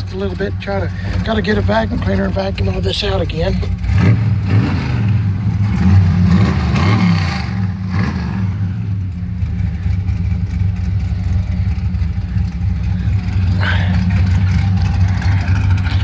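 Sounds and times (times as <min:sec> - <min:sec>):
car engine revving and idling: 0:00.0 - 0:16.0.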